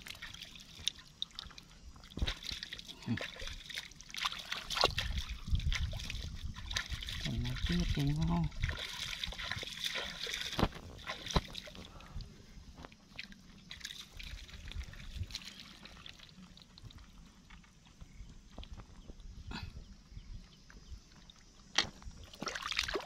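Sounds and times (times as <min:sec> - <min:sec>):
muddy water squelching and sloshing: 0:00.0 - 0:19.7, 0:20.5 - 0:23.0
sharp wet smacks: 0:02.2 - 0:08.0.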